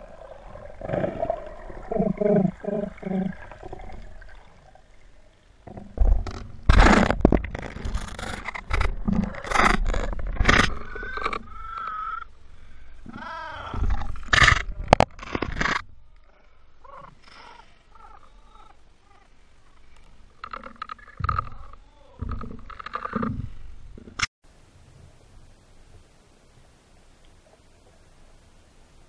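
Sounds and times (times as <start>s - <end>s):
seawater splashing: 0.0s - 5.9s.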